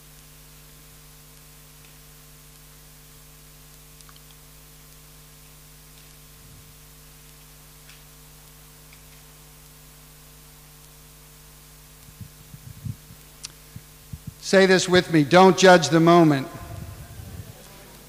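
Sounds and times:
electrical mains hum: 0.0s - 18.0s
faint ticks: 4.0s - 6.2s.

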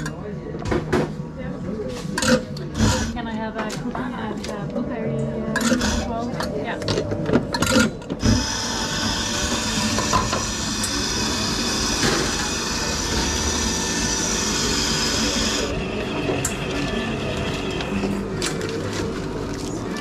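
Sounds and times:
coffee grinder motor whirring: 5.6s - 6.1s, 8.2s - 20.0s.

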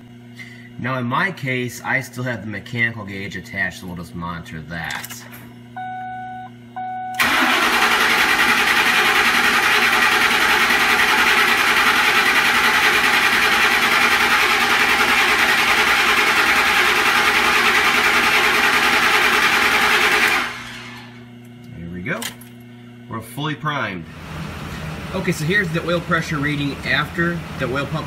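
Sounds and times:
engine cranking without firing: 7.2s - 11.2s.

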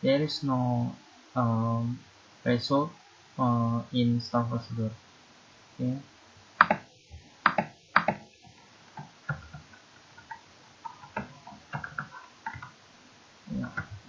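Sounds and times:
keyboard keystroke taps: 6.6s - 6.8s, 7.4s - 8.2s
mouse clicks: 6.6s - 6.8s, 7.4s - 8.2s.

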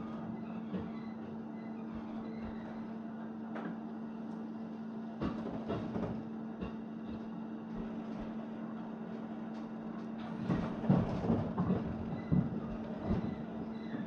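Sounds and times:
knocks and clanks: 10.2s - 13.5s.

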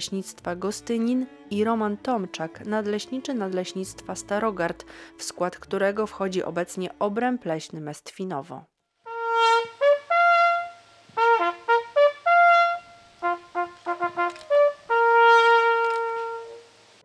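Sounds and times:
brass hunting horn call: 9.0s - 16.8s.

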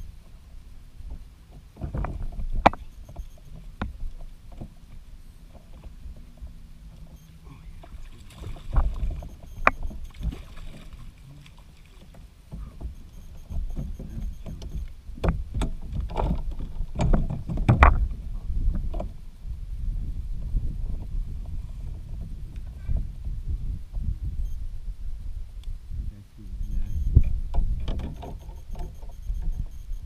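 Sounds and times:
knocks and clatter on plastic kayak: 1.0s - 7.2s, 7.8s - 11.1s, 11.9s - 19.2s, 20.4s - 24.1s, 27.2s - 29.6s
low rumble: 12.9s - 27.9s.

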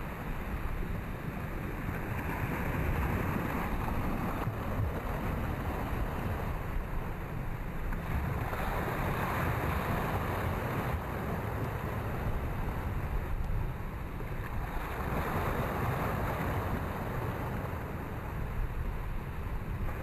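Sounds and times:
small waves washing over sand: 0.0s - 20.0s
wind rumble on microphone: 0.0s - 20.0s.

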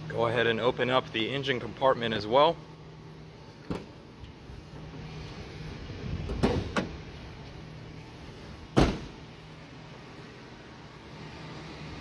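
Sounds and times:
loud thump: 8.8s - 9.2s.

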